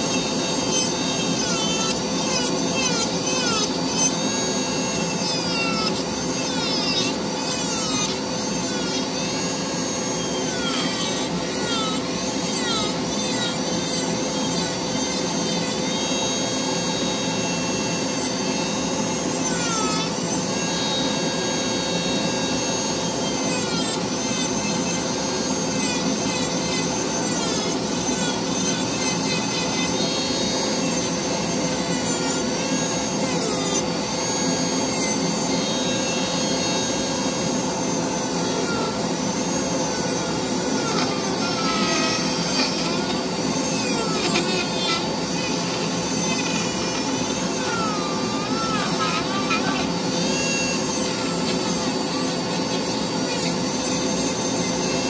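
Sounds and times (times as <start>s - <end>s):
rotary tool motor whine: 0.0s - 55.0s
burr grinding wood: 36.4s - 55.0s.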